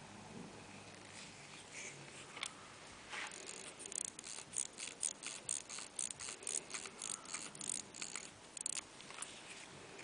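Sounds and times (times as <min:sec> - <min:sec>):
pocket watch ticking clicks: 0:03.4 - 0:08.9.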